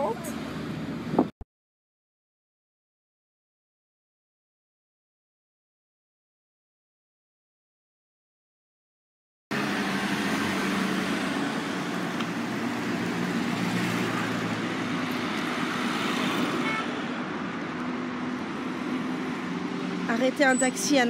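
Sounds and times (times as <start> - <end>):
cars driving past: 9.5 - 21.0.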